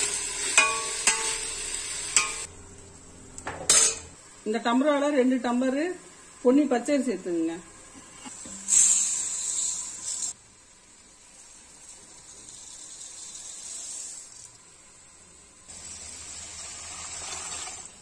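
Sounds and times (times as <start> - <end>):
rice poured into metal pot: 11.2 - 14.5.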